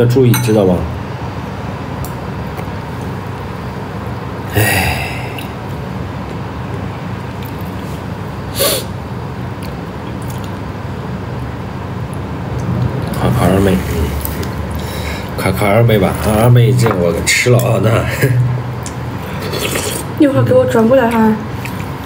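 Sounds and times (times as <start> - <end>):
low background hum: 0.0 - 22.0
short hissing noises: 8.5 - 8.9
person eating from a bowl: 16.8 - 20.2.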